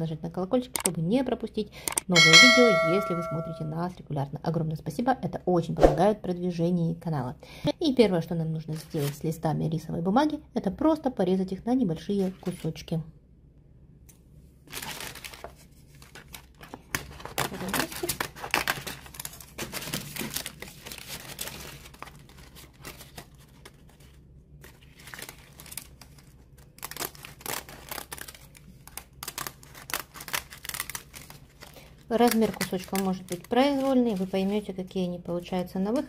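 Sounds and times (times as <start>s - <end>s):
paper crackling and rustling: 8.8s - 9.2s, 14.6s - 34.9s
scissors cutting rice paper: 26.8s - 34.2s.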